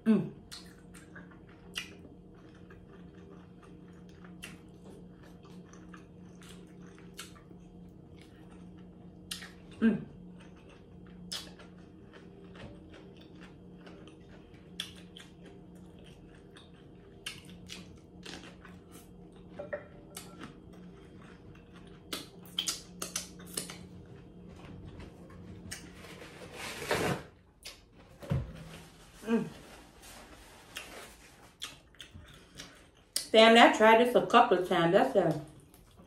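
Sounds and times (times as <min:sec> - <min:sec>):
steady low hum: 0:00.0 - 0:36.0
chewing with mouth clicks: 0:00.4 - 0:25.9, 0:30.7 - 0:33.3, 0:35.3 - 0:36.0
paper towel rustling and tearing: 0:25.8 - 0:27.3, 0:28.5 - 0:31.6.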